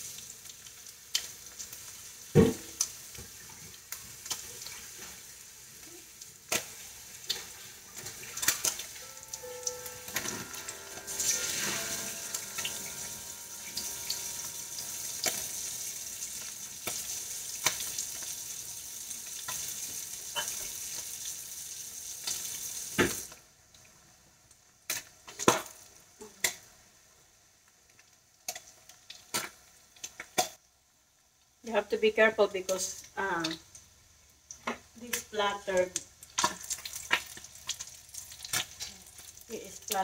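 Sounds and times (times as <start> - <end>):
meat sizzling in hot oil: 0.0 - 23.4, 24.6 - 30.6, 31.5 - 40.0
oil popping: 36.0 - 39.4.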